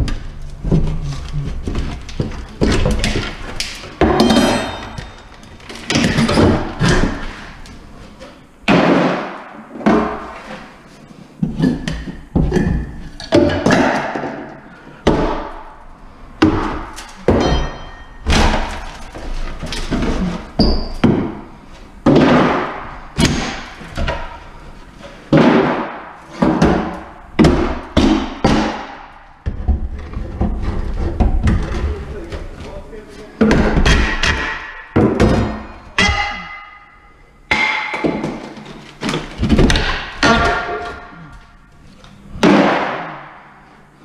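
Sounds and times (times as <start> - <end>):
crowbar breaking wooden cabinets: 1.6 - 7.5, 8.7 - 10.7, 11.5 - 15.6, 16.4 - 24.4, 25.3 - 31.9, 33.4 - 36.9, 37.5 - 41.2, 42.4 - 43.4.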